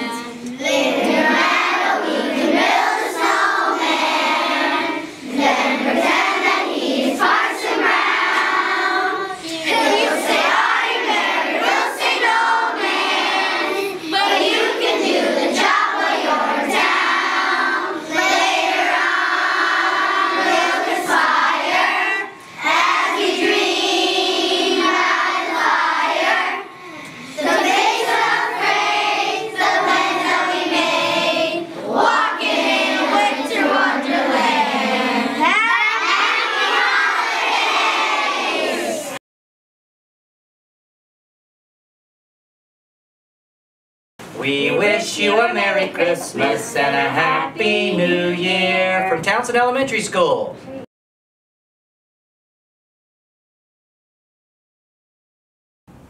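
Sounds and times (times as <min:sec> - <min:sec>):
young children singing: 0:00.0 - 0:39.2, 0:44.4 - 0:49.2.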